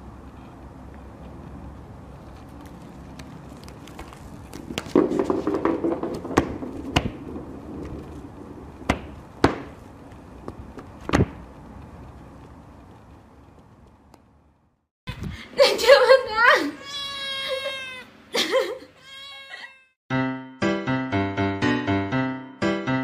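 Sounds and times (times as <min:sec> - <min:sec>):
ball toy knocking: 0:04.7 - 0:08.0.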